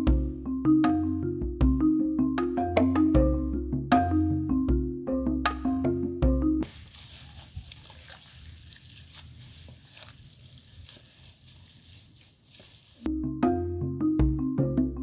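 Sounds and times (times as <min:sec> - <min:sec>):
background music: 0:00.0 - 0:06.6, 0:13.1 - 0:15.0
leafy greens rustling and crunching: 0:06.6 - 0:13.1.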